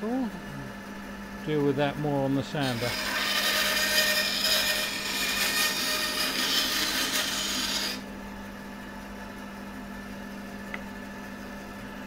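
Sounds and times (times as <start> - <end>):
bandsaw humming: 1.5 - 8.1
bandsaw cutting wood: 2.6 - 8.0.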